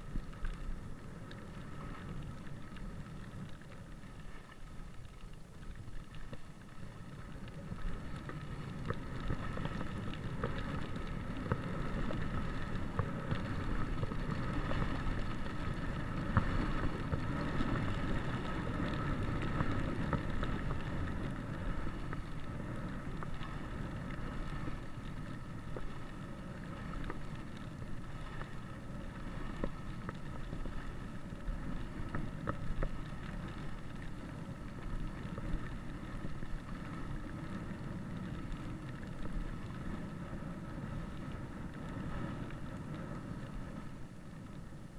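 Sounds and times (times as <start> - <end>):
small clicks: 0.0 - 28.6
skis scraping on snow: 6.0 - 44.8.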